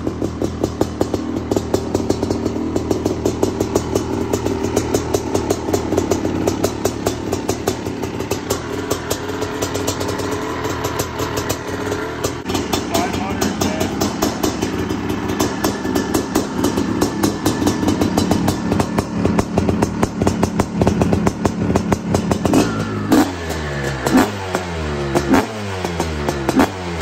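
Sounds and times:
two-stroke engine idling: 0:00.0 - 0:27.0
exhaust pops crackling: 0:03.0 - 0:23.2.

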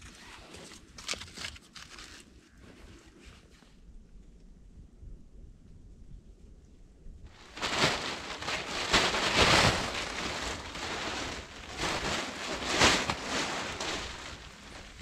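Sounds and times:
plastic tarpaulin rustling: 0:07.3 - 0:15.0.

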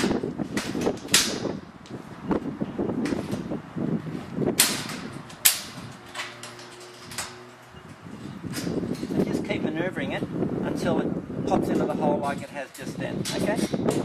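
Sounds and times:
metal ramp knocks and clunks: 0:04.5 - 0:09.5, 0:11.5 - 0:14.0.

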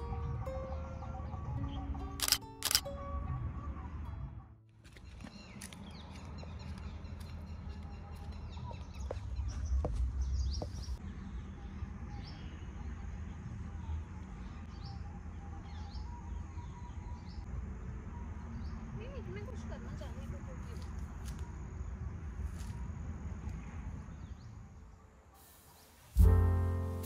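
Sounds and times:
sharp clicks: 0:02.2 - 0:02.9
small birds chirping: 0:04.9 - 0:17.5.

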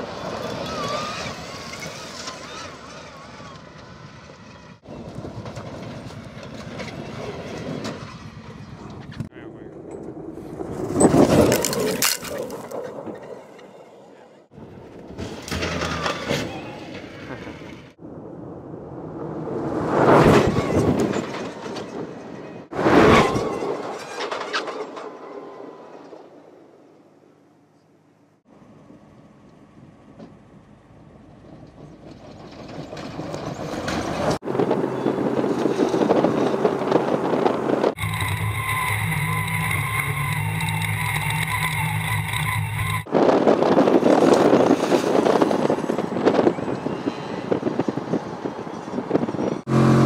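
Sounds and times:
electric race car tyres and drivetrain: 0:00.0 - 0:18.0, 0:28.5 - 0:50.0
tyres crunching on gravel: 0:11.0 - 0:12.8.

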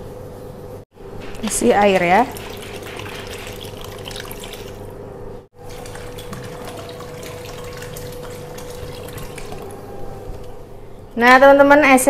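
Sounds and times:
water pouring into a bowl: 0:01.9 - 0:04.9, 0:05.6 - 0:09.8.

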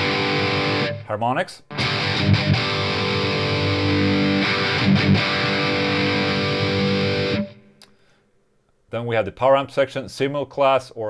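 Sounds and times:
distorted electric guitar: 0:00.0 - 0:01.1, 0:01.7 - 0:07.9.

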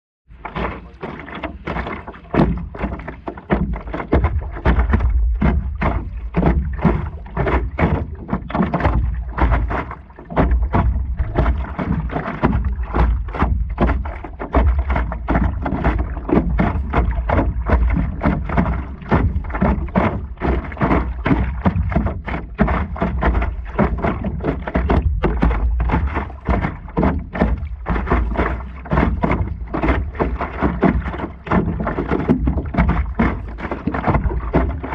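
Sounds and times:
water splashing against paddleboard: 0:00.3 - 0:34.9.

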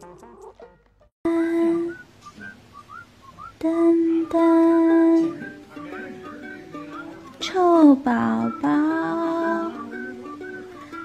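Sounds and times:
whistle-like melodic phrases: 0:01.3 - 0:11.0
light background music: 0:03.8 - 0:11.0.

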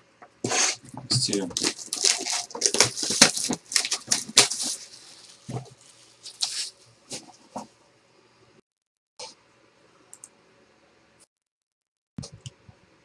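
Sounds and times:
packaging crinkling and tearing: 0:00.9 - 0:06.8.

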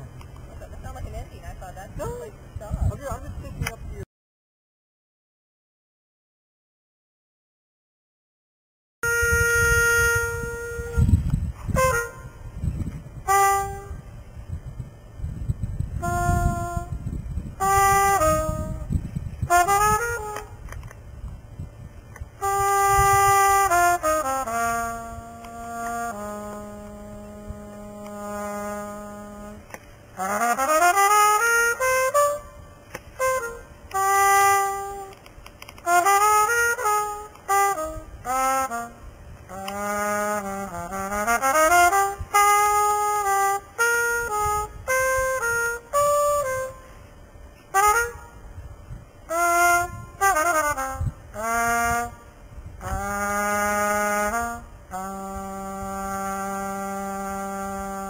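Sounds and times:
brass horn playing jazz: 0:09.0 - 0:14.4, 0:15.9 - 0:20.8, 0:22.4 - 0:58.0
low rumble: 0:09.5 - 0:30.9.

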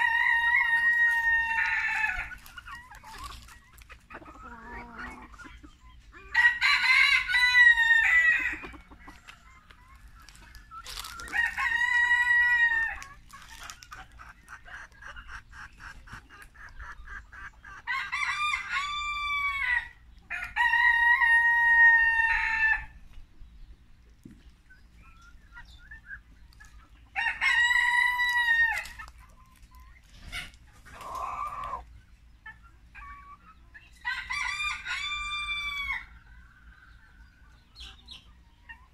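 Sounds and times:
cockerels crowing: 0:00.0 - 0:03.4, 0:06.2 - 0:09.2, 0:10.2 - 0:13.8, 0:17.8 - 0:23.0, 0:27.1 - 0:29.1, 0:34.0 - 0:36.2
chicken clucking: 0:00.0 - 0:38.9.

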